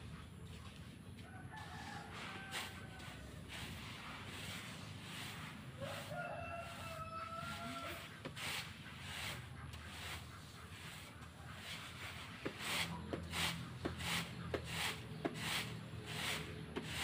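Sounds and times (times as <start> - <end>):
rake rasping through grain: 0.0 - 17.0.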